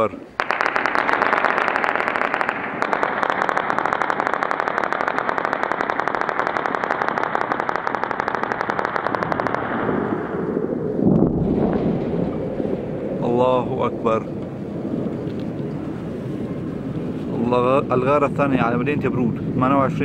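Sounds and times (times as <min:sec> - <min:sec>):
machine gun firing: 0:00.4 - 0:10.5
low steady rumble: 0:02.0 - 0:20.0.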